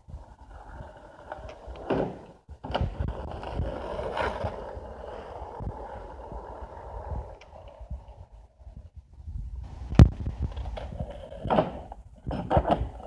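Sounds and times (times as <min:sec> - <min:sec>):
skateboard wheels rolling on asphalt: 0:00.0 - 0:13.0.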